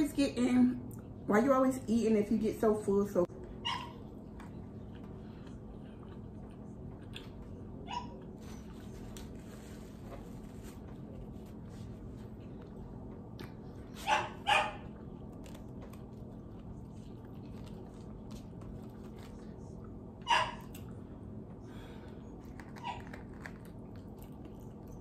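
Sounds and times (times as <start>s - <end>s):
steady low hum: 0.0s - 25.0s
dog barking: 3.6s - 4.0s, 14.0s - 14.9s, 20.2s - 20.8s.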